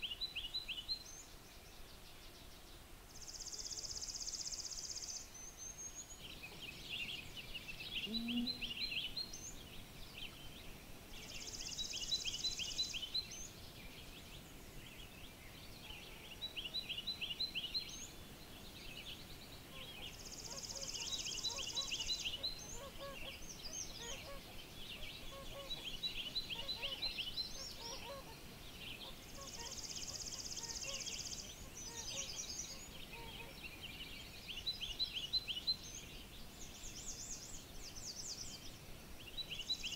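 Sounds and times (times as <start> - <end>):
songbird phrase of rising notes: 7.8 - 9.4.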